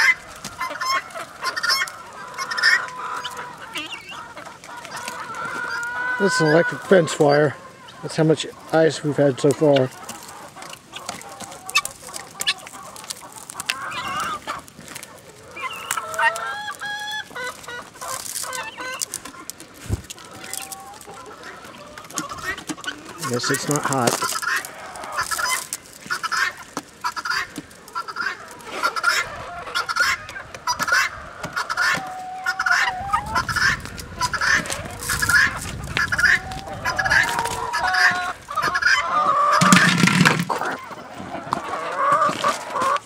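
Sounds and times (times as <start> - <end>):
guineafowl calling: 0.0 - 14.6, 15.3 - 19.6, 20.2 - 43.0
chickens clucking: 0.0 - 43.0
sharp clicks and crackles: 9.8 - 16.8, 17.5 - 28.0.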